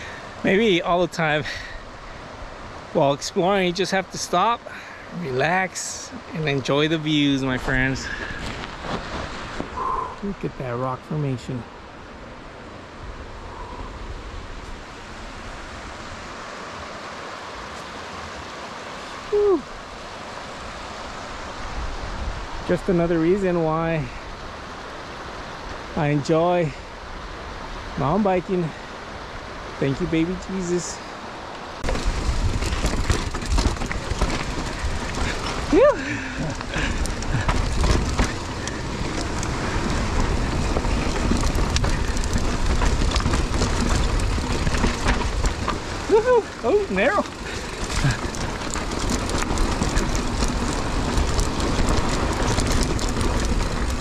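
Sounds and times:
bike tyres rumbling on rocky trail: 0.0 - 1.8, 2.8 - 11.6, 31.8 - 54.0
creek rushing: 0.0 - 54.0
bike rattling: 3.0 - 10.0, 31.8 - 54.0.

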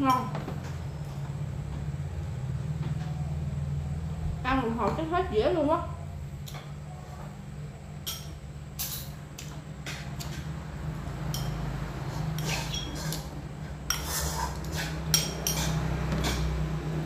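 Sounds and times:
steady low hum: 0.0 - 17.0
metal spoon scraping ceramic bowl: 12.3 - 13.3, 13.9 - 16.6.

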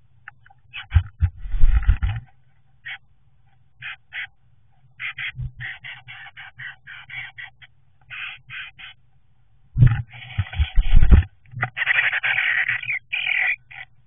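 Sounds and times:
faint electrical hum: 0.0 - 14.0
bird rustling nesting material: 1.0 - 2.3, 9.8 - 11.3.

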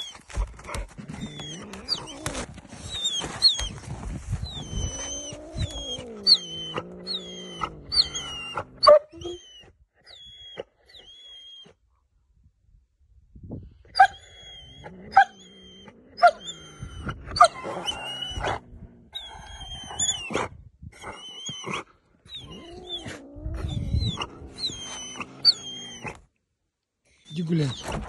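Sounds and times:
dog whining: 0.0 - 11.8, 13.9 - 26.3, 27.3 - 28.0
low growl: 4.4 - 9.4, 14.4 - 20.6, 22.4 - 26.3.

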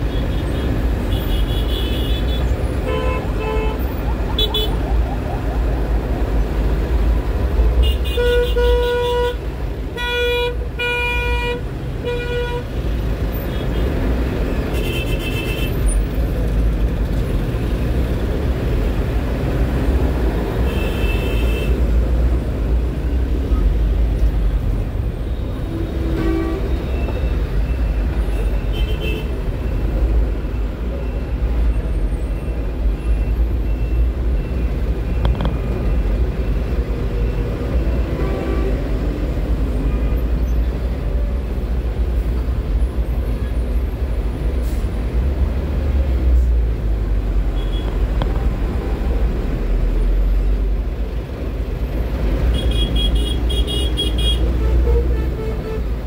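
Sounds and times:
vehicle horns honking: 0.1 - 4.8, 7.8 - 12.7, 25.7 - 27.0, 52.5 - 56.0.

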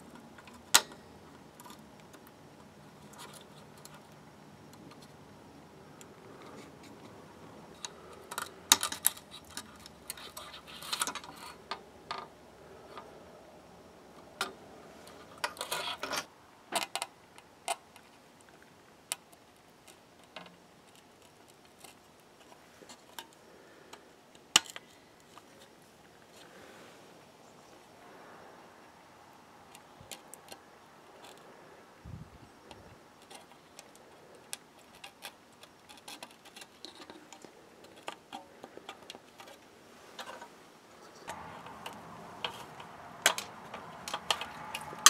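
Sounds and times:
sharp plastic clacks: 41.2 - 45.0.

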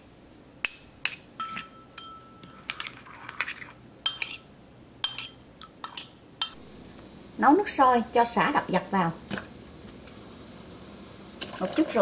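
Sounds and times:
metal spoons clinking on ceramic bowl: 0.7 - 3.4, 4.1 - 6.6
spoon stirring liquid: 2.0 - 4.4.

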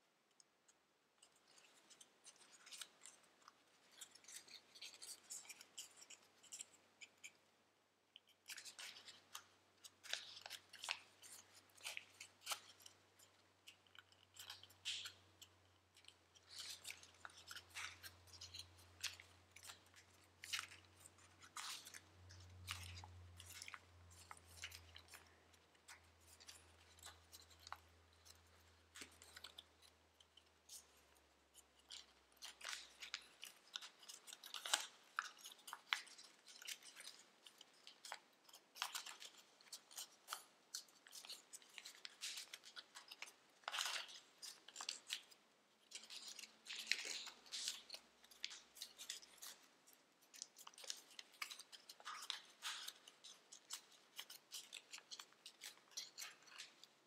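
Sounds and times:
paper crinkling: 1.2 - 7.4, 8.2 - 57.0.

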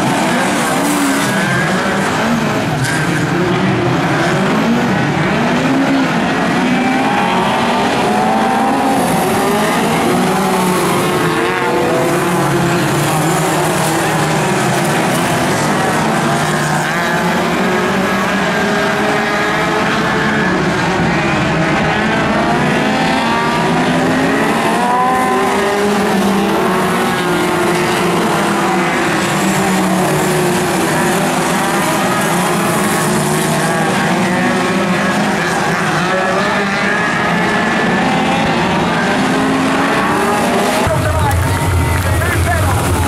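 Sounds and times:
race car engines: 0.0 - 43.0.

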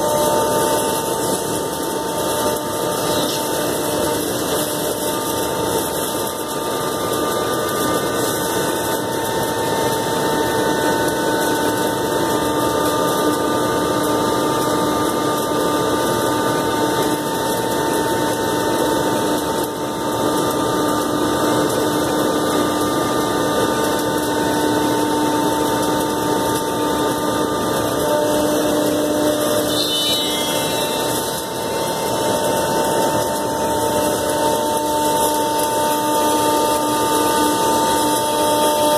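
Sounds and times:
router spindle whine: 0.0 - 38.9.

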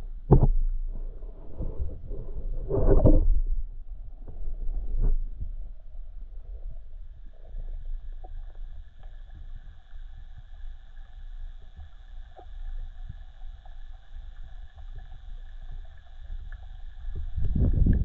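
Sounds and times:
faint steady whine: 0.0 - 18.0
low rumble of moving water: 0.0 - 18.0.

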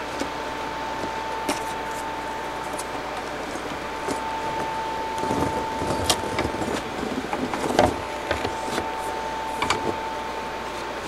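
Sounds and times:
steady high hum: 0.0 - 11.0.

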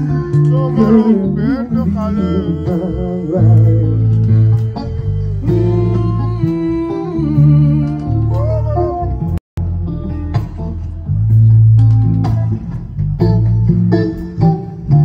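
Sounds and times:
man singing: 0.0 - 9.4
guitar: 0.0 - 15.0
low sustained bass notes: 0.0 - 15.0.

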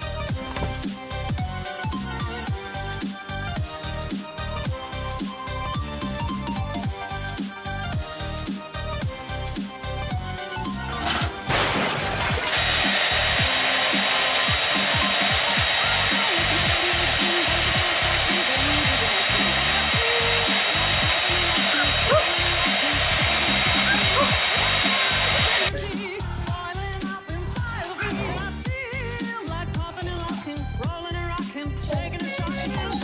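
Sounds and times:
background music with beat: 0.0 - 11.5, 12.4 - 33.0
electric blower rushing: 10.6 - 25.9.

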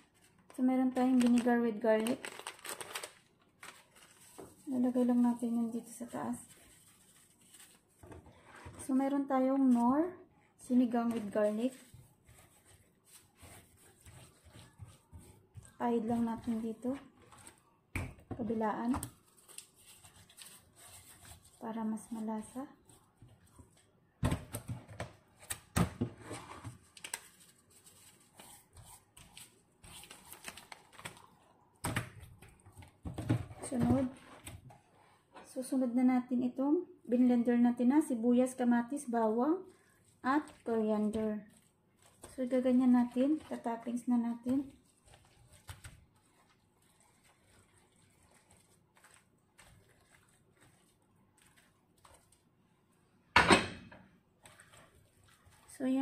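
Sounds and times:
hands rubbing and slapping fish: 10.9 - 25.7, 26.8 - 33.0, 40.0 - 52.6, 54.4 - 56.0.

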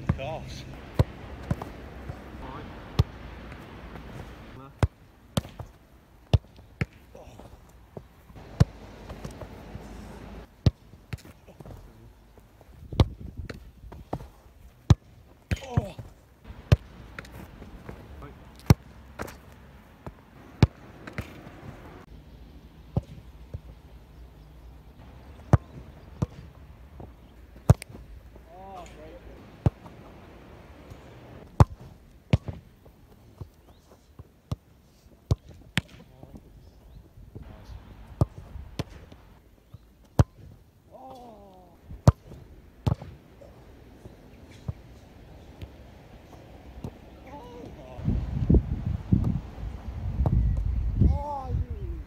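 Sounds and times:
football kicked on grass: 0.0 - 11.9, 12.7 - 21.8, 25.3 - 28.2, 30.9 - 34.6, 37.4 - 40.6, 41.9 - 43.2
person calling out: 40.9 - 41.8, 51.0 - 52.0.

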